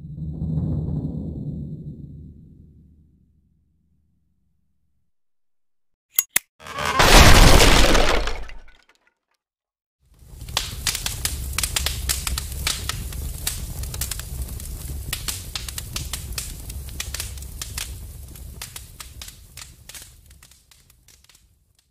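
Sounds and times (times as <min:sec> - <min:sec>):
fire crackling: 0:10.2 - 0:21.8.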